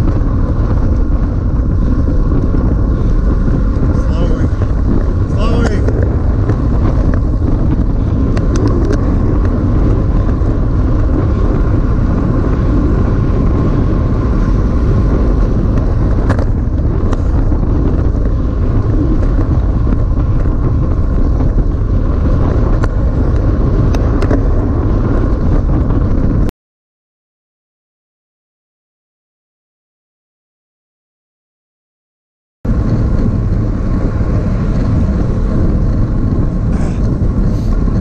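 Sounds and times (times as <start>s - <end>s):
bicycle tyre noise on road: 0.0s - 26.5s, 32.7s - 38.0s
wind rushing over microphone: 0.0s - 26.5s, 32.6s - 38.0s.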